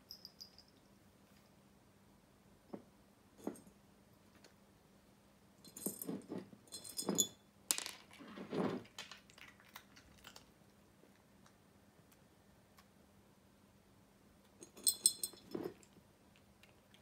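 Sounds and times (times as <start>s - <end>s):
glass jar clinking on wooden floor: 5.7s - 8.8s, 14.6s - 15.9s.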